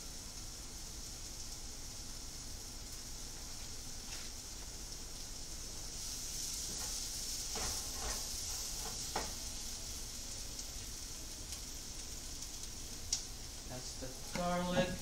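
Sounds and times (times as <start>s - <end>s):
food sizzling in a pot: 0.0s - 15.0s.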